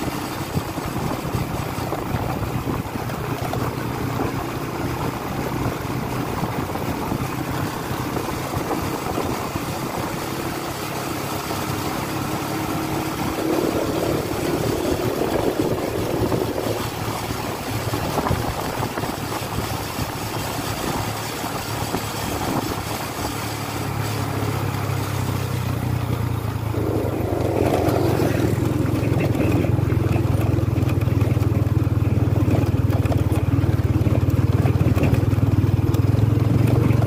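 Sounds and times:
road noise: 0:00.0 - 0:37.0
vehicle engine running: 0:00.0 - 0:37.0
wind: 0:00.0 - 0:37.0.

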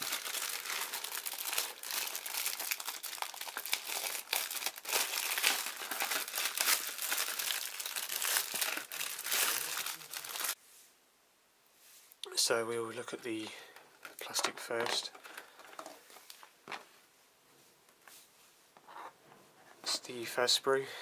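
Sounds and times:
plastic bag crinkling: 0:00.0 - 0:10.6.

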